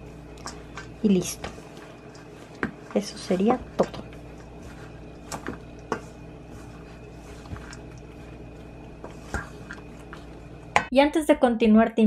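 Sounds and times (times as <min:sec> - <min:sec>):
spatula stirring dough in metal bowl: 0:00.0 - 0:10.9
spatula knocking against bowl: 0:02.2 - 0:08.3.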